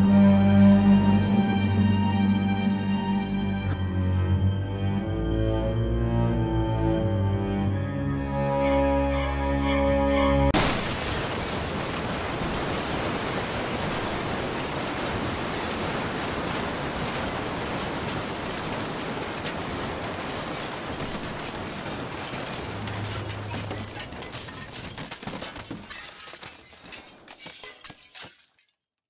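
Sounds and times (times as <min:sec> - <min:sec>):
music: 0:00.0 - 0:10.6.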